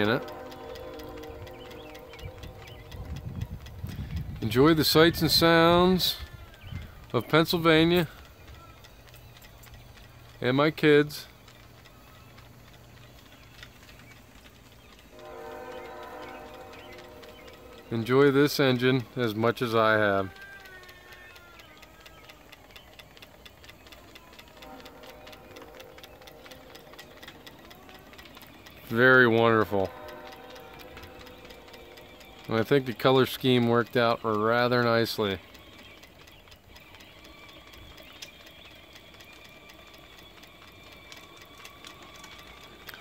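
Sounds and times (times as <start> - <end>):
model steam engine ticking: 0.0 - 43.0.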